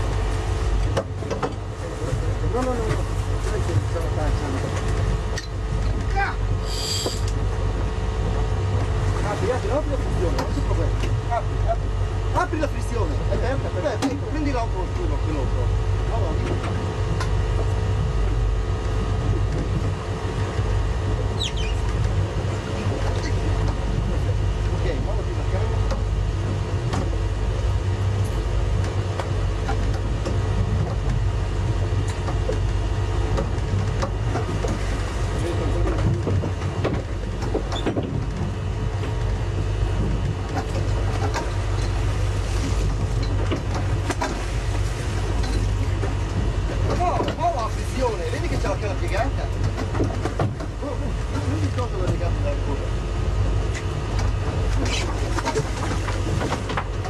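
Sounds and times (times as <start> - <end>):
boat engine rumbling: 0.0 - 57.0
brief high squeak: 6.7 - 7.2, 21.4 - 21.8.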